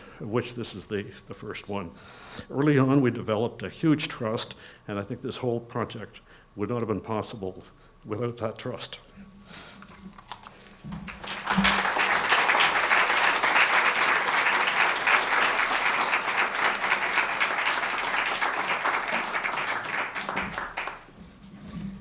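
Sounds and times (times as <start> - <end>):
audience applauding: 11.1 - 21.2.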